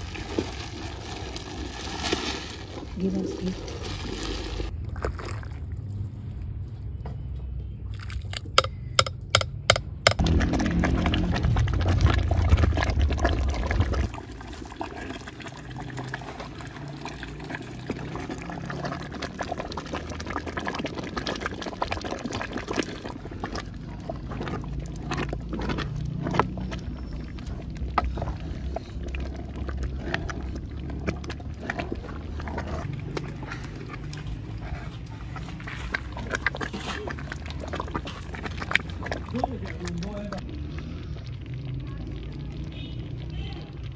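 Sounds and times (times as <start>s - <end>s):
liquid sloshing and bubbling: 0.0s - 43.9s
spatula scraping and tapping pot: 8.4s - 10.2s.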